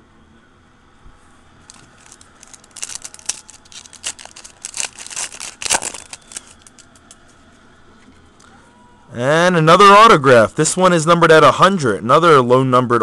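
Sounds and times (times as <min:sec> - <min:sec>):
foil wrapper tearing and crinkling: 0:01.7 - 0:07.2.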